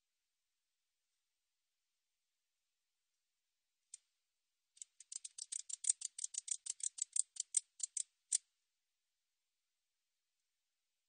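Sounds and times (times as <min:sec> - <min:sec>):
katydid ticking: 0:04.8 - 0:08.4.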